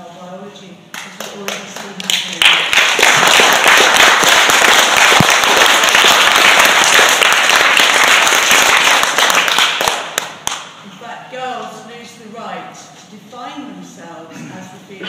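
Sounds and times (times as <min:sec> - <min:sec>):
audience applauding: 0:01.8 - 0:10.6.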